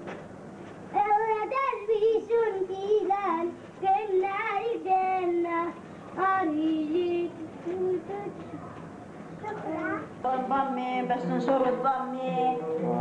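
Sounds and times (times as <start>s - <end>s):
child singing: 0.9s - 8.8s, 9.4s - 10.6s.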